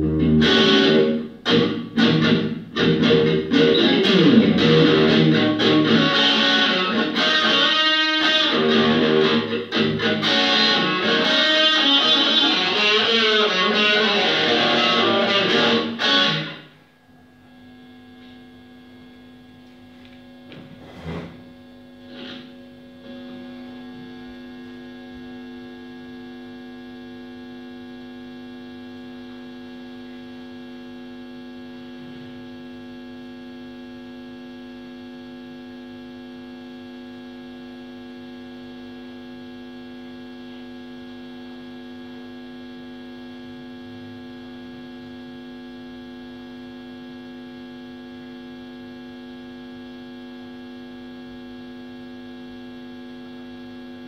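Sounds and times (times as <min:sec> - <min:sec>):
electric guitar feedback drone: 0:00.0 - 0:16.8, 0:22.0 - 0:24.5.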